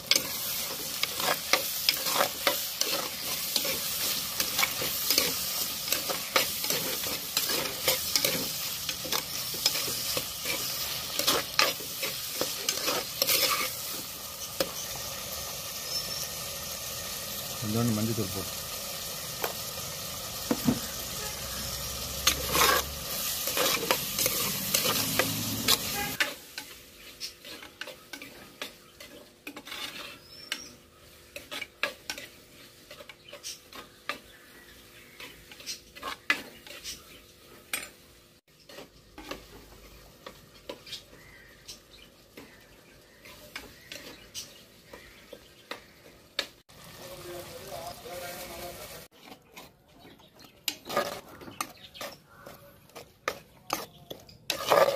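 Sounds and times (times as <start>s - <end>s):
spoon scraping and knocking pot: 0.0s - 14.9s, 22.2s - 26.8s, 27.4s - 30.8s, 49.1s - 54.9s
food sizzling in oil: 0.0s - 49.7s, 50.7s - 54.9s.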